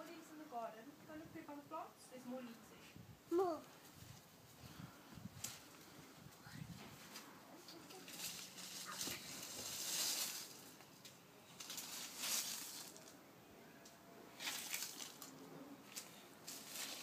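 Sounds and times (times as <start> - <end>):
push broom sweeping leaves: 7.8 - 10.8, 11.5 - 13.1, 14.4 - 17.0.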